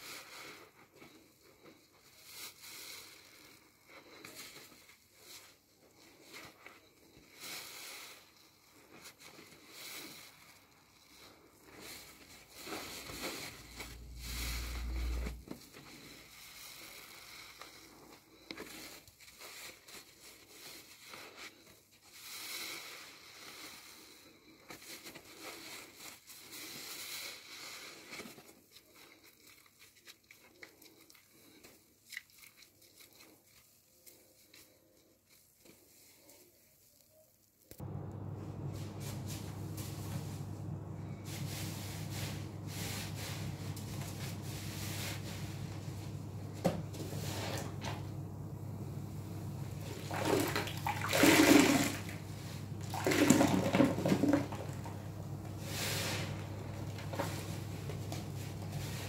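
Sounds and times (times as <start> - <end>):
sponge squelching in foam: 0.0 - 37.0, 37.8 - 59.0
deep low rumble: 13.1 - 15.6, 37.8 - 50.2.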